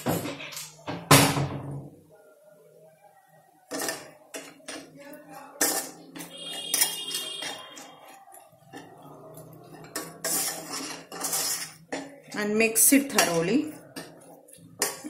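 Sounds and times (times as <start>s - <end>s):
metal spoon scraping steel pan: 5.6s - 9.0s, 9.6s - 14.1s.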